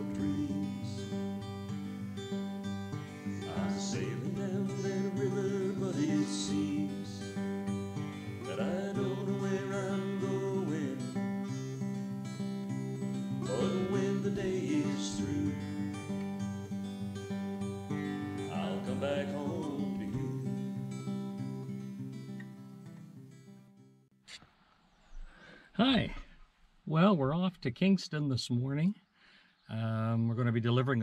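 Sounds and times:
person singing: 0.0 - 1.3, 3.2 - 7.4, 8.4 - 12.0, 12.9 - 16.1, 18.4 - 20.8
acoustic guitar music: 0.0 - 24.1.

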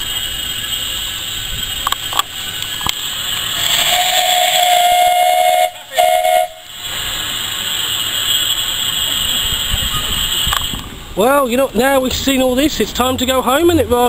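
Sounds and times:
hissing steam: 0.0 - 13.6
steam whistle blasts: 3.5 - 6.7.

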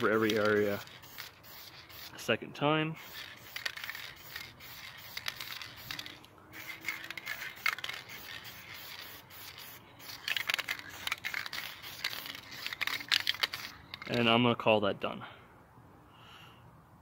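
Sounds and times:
aerosol spray can hissing: 0.0 - 2.2, 3.0 - 14.0.

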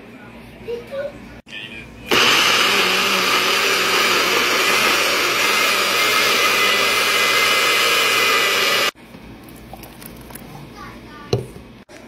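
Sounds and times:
blender motor whining: 2.1 - 9.0.

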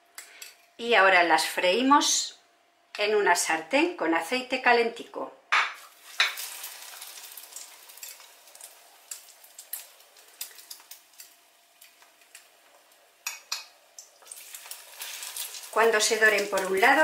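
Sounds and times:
food sizzling in hot oil: 5.8 - 17.0
oil popping and crackling: 5.8 - 17.0.

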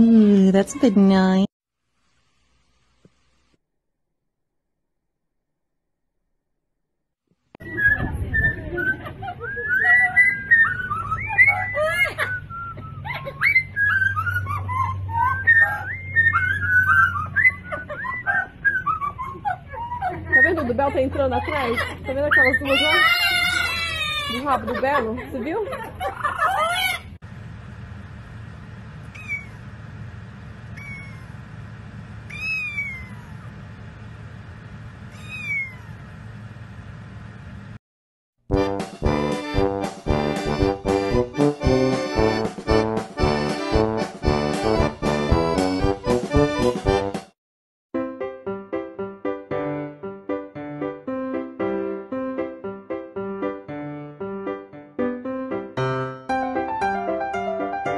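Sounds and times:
parrots whistling and squawking: 7.6 - 20.6, 21.4 - 24.4, 26.1 - 27.1, 29.1 - 29.7, 30.7 - 31.4, 32.3 - 33.5, 35.2 - 35.9
low steady hum: 27.2 - 37.8
kitten meowing: 29.1 - 29.6, 30.7 - 31.4, 32.3 - 33.5, 35.1 - 36.0.

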